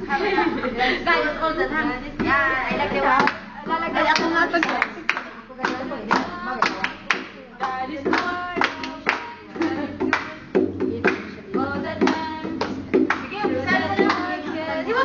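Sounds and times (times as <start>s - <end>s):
girls singing: 0.0s - 15.0s
hands clapping: 4.1s - 10.4s, 11.0s - 11.3s, 12.0s - 14.3s.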